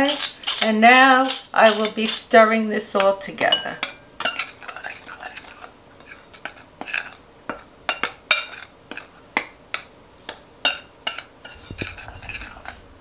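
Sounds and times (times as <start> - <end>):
metal spoon clinking in bowl: 3.0 - 5.4.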